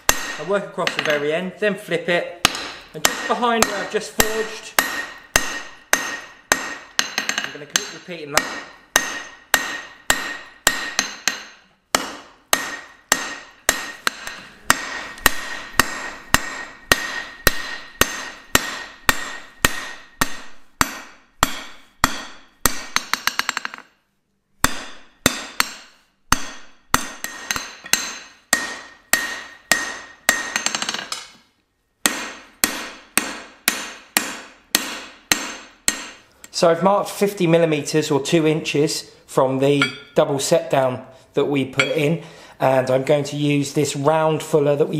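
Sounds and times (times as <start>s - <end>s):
hammer striking hot metal on anvil: 0.0s - 1.2s, 2.4s - 23.8s, 24.6s - 31.3s, 32.0s - 36.2s, 39.8s - 40.2s.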